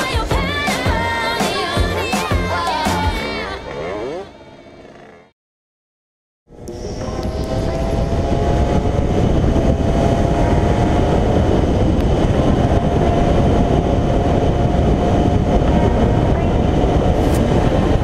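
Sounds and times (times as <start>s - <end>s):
wind noise on microphone: 6.5s - 18.0s
quad bike engine running hard: 6.7s - 18.0s.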